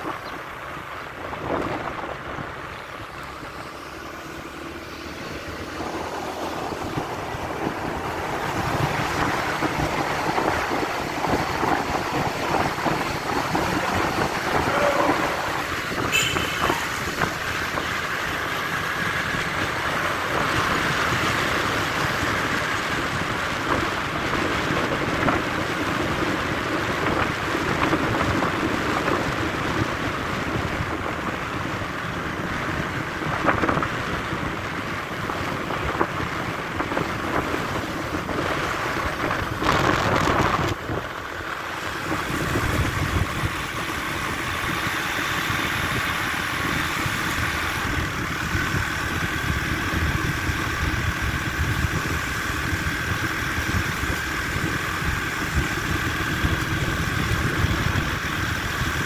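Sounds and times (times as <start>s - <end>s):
road noise: 0.0s - 59.0s
scooter engine: 0.0s - 59.0s
wind rushing over microphone: 0.0s - 59.0s.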